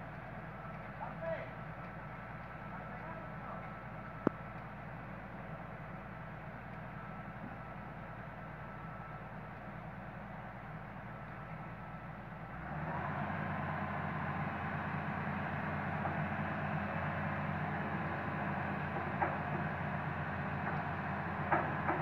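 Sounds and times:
excavator diesel engine revving: 8.5 - 22.0.

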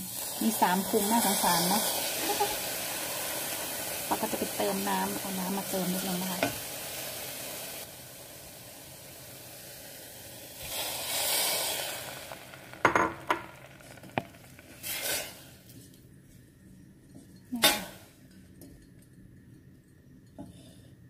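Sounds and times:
water hissing in hot pan: 0.0 - 15.7
food sizzling in a pot: 0.0 - 15.8.

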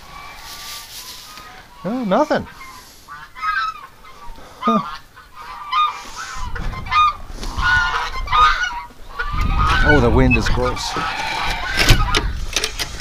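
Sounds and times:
geese honking: 0.0 - 12.5
low wind rumble: 5.0 - 13.0.

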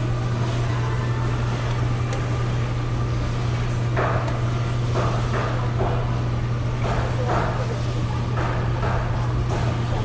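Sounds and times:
low machine hum: 0.0 - 10.0.

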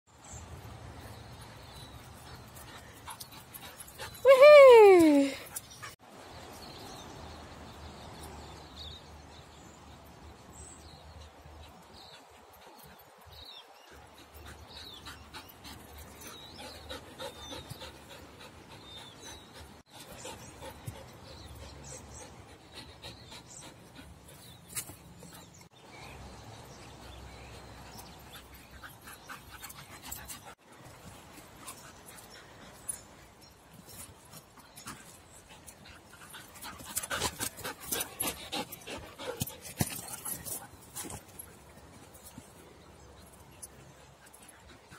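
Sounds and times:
dog panting: 13.8 - 24.7, 34.7 - 41.2.

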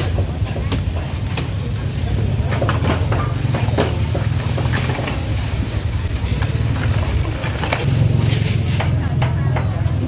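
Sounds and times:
motorbike traffic rumble: 0.0 - 10.0.

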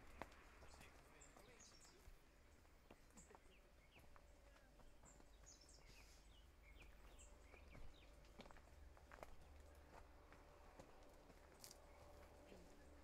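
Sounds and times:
faint bird chirps: 3.0 - 7.9.

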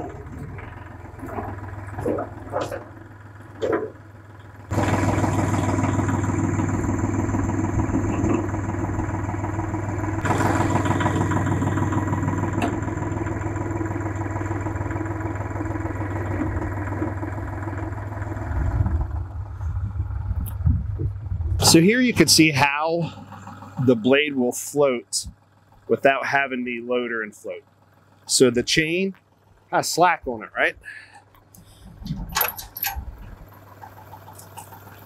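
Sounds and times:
tractor diesel engine running: 0.0 - 35.0.

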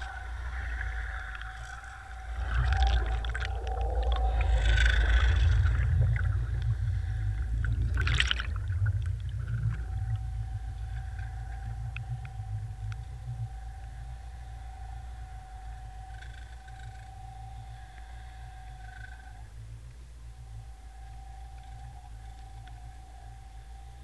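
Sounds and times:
steady thin tone: 0.0 - 24.0
underwater rumble with bubbling: 0.0 - 24.0.

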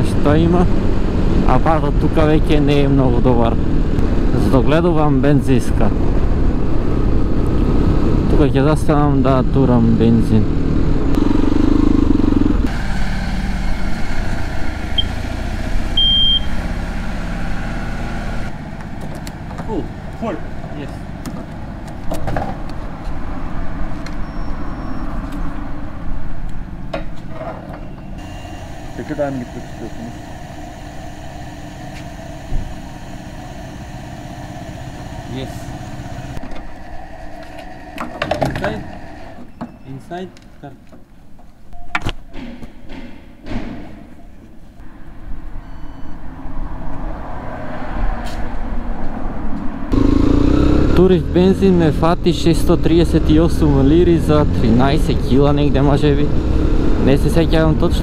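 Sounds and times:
vehicle engine rumbling: 0.0 - 41.4, 48.2 - 58.0
short electronic beep: 16.0 - 16.6, 45.6 - 46.2
motorcycle engine idling: 28.2 - 36.4.

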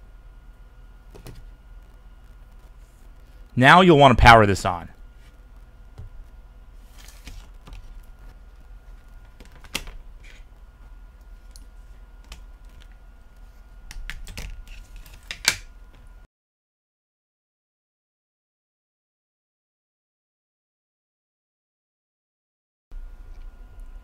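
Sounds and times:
faint steady hum: 0.0 - 16.3, 22.9 - 24.0.

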